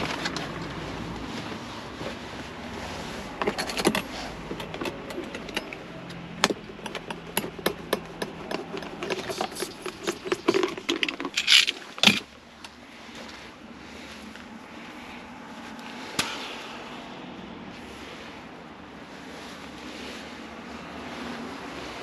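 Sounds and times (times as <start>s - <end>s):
metal fittings clicking and rattling: 3.4s - 12.2s.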